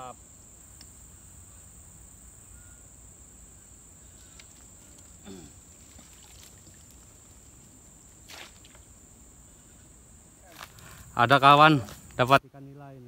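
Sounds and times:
high-pitched insect chorus: 0.0 - 13.0
water splash: 5.8 - 7.2, 8.2 - 8.9.

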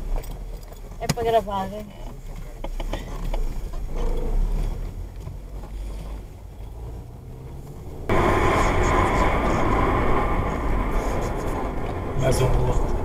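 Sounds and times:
car engine and tyre rumble: 0.0 - 13.0
loud road noise: 2.3 - 13.0.

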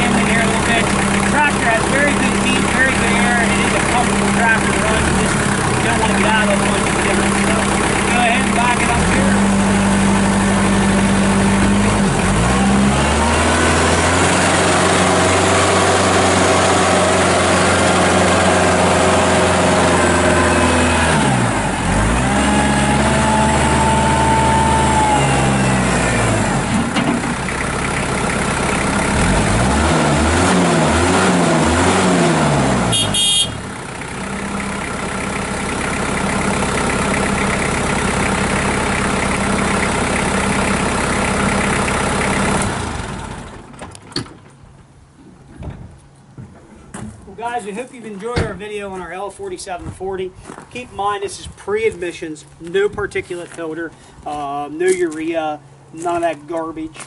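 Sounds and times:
tractor diesel engine revving: 0.0 - 44.0.

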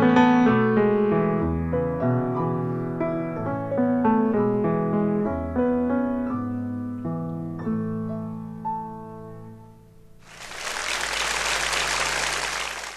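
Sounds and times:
grand piano lullaby: 0.0 - 11.5
audience applause: 10.2 - 12.9.

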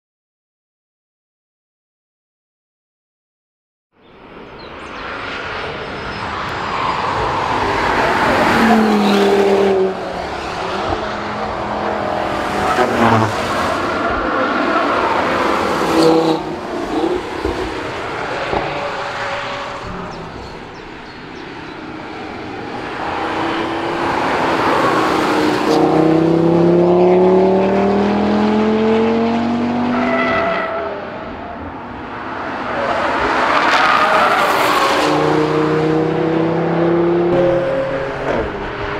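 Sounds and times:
car engine accelerating past: 22.8 - 30.4.

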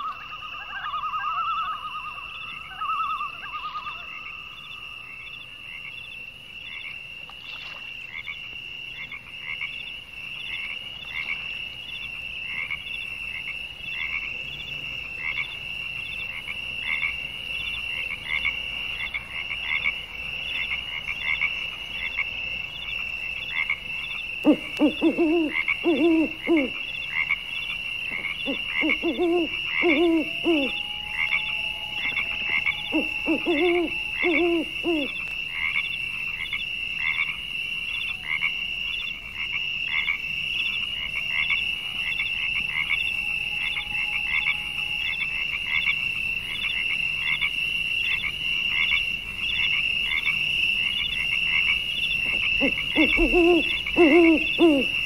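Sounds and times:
frogs croaking: 0.0 - 55.0
frog trill: 28.2 - 35.9, 51.0 - 55.0.

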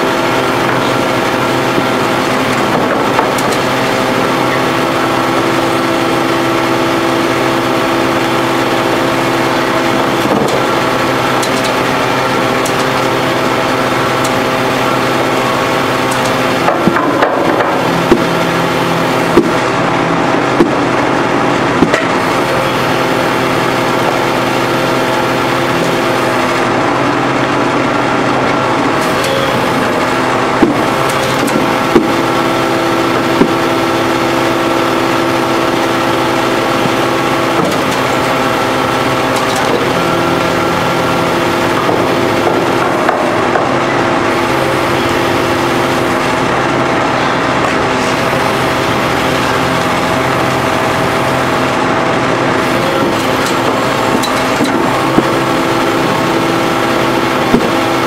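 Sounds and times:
hydraulic power pack droning: 0.0 - 58.0.

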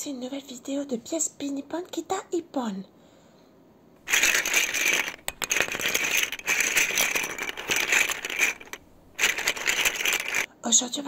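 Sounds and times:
plastic toy pieces rattling: 4.1 - 10.5.

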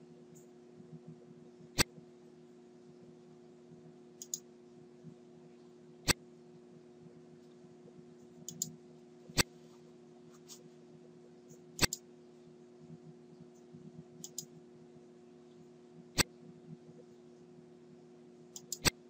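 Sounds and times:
steady low hum: 0.0 - 19.0
computer mouse clicks: 4.2 - 4.4, 8.5 - 8.8, 11.5 - 12.0, 13.6 - 14.5, 18.6 - 19.0
faint ticks: 13.5 - 14.5.

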